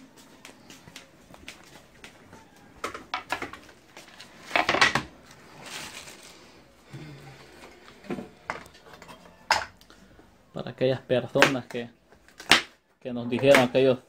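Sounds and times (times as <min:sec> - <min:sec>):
kitchen items clattering on counter: 0:04.4 - 0:05.1.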